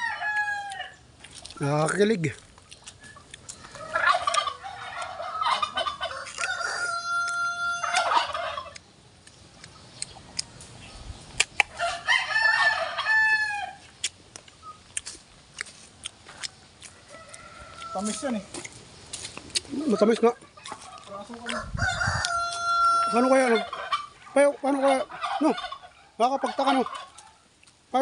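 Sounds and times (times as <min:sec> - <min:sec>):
rooster crowing: 0:00.0 - 0:01.0, 0:03.6 - 0:08.7, 0:11.8 - 0:13.8, 0:16.9 - 0:18.4, 0:21.5 - 0:23.7
crunching bites of raw mango: 0:00.3 - 0:05.2, 0:06.0 - 0:11.9, 0:13.8 - 0:19.8.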